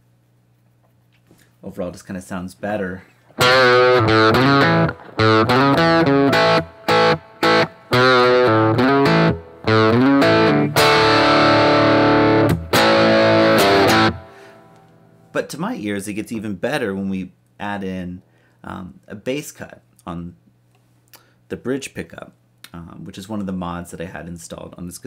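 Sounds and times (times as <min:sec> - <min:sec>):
distorted electric guitar chords: 0:03.4 - 0:15.0.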